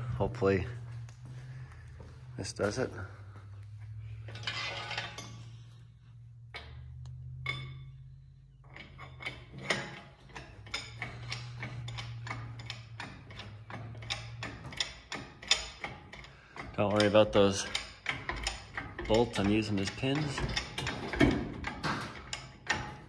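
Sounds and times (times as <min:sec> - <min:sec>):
steady low hum: 0:00.0 - 0:23.0
chains clicking and clinking: 0:07.2 - 0:23.0.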